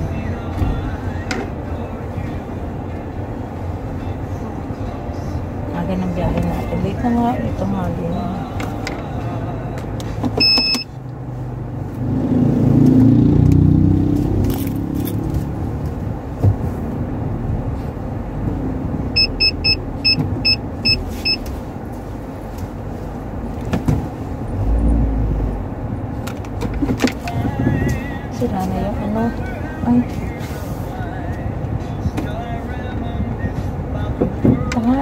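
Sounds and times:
car engine and road noise: 0.0 - 35.0
short high electronic beeps: 10.4 - 10.9, 19.2 - 21.4.

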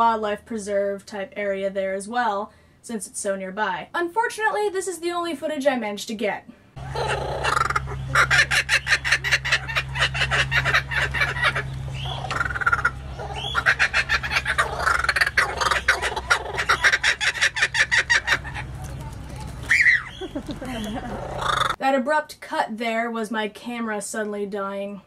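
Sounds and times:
low steady hum: 6.6 - 21.8
kookaburra laughing call: 6.8 - 18.7, 19.7 - 21.8.

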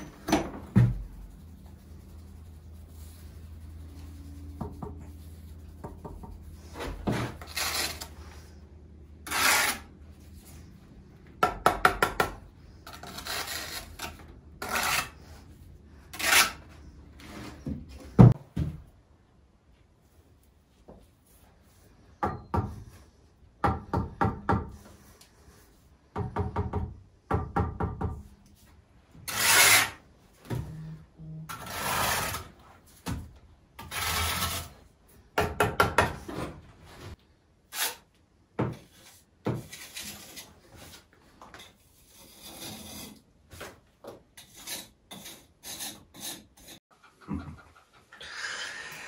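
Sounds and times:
trowel scraping mortar: 6.6 - 8.6, 9.2 - 9.9, 12.8 - 15.4, 16.1 - 17.6, 29.3 - 30.0, 31.5 - 32.6, 33.8 - 34.8, 37.7 - 38.1, 39.0 - 41.0, 41.6 - 43.2, 44.4 - 46.8.

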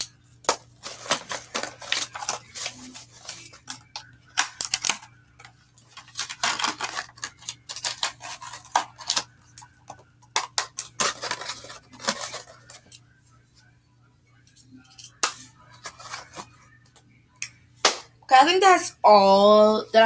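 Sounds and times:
small items clicking and clattering: 0.0 - 13.0
papers rustling: 0.4 - 13.0, 15.0 - 16.6.

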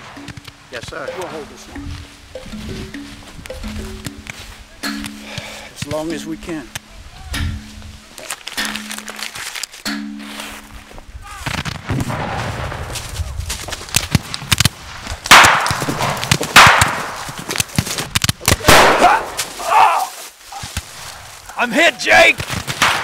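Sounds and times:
rifle gunshots with echo: 11.9 - 13.0, 15.3 - 17.3, 18.6 - 19.4.

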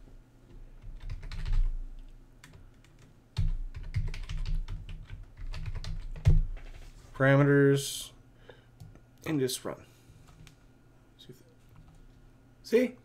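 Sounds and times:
computer keyboard typing: 0.8 - 6.5.

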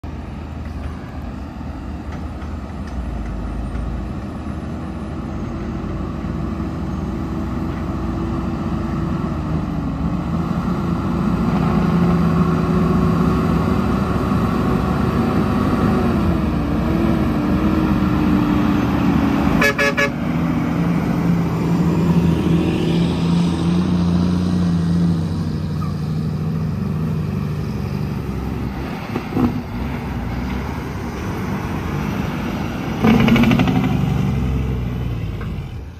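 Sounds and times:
dump truck diesel engines: 0.0 - 35.9
truck horn toot: 19.5 - 20.3.

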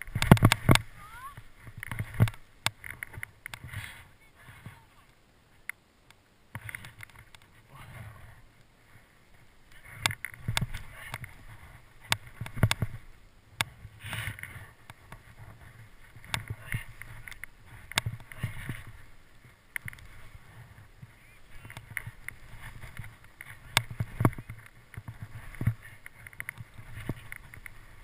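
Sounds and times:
sharp clicks and knocks: 0.0 - 3.7, 12.0 - 13.0, 19.7 - 20.2, 21.6 - 27.8
skis scraping on snow: 0.0 - 5.1, 6.6 - 28.0.

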